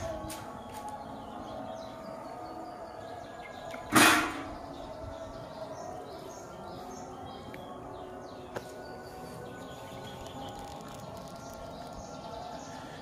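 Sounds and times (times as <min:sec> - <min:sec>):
faint bird chirps: 0:08.6 - 0:13.0.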